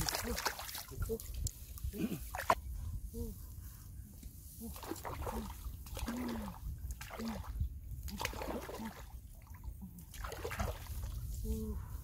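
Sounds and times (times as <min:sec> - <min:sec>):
shallow water splashing: 0:00.0 - 0:02.7, 0:04.6 - 0:11.3
low water gurgles: 0:04.6 - 0:11.8.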